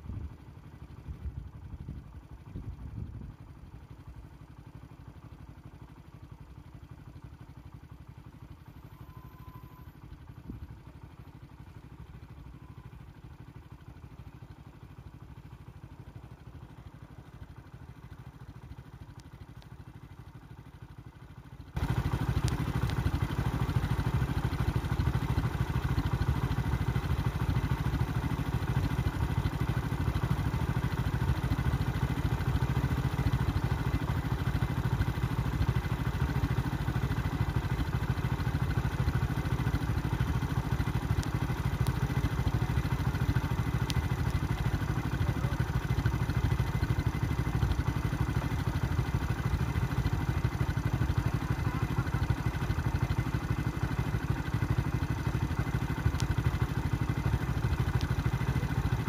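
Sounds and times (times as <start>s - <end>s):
vehicle engine idling: 0.0s - 59.0s
faint ticks: 19.0s - 19.8s, 21.8s - 23.4s, 56.0s - 56.7s.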